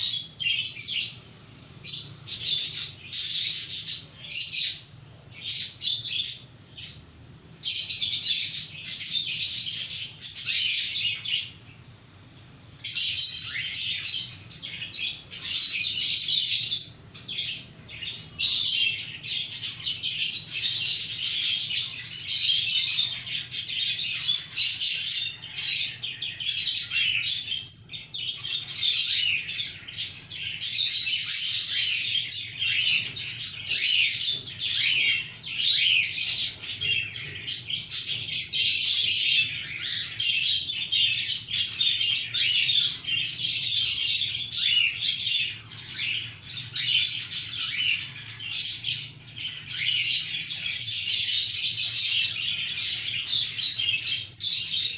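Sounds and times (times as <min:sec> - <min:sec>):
budgerigars chirping: 0:00.0 - 0:07.0, 0:07.6 - 0:11.8, 0:12.8 - 0:54.9.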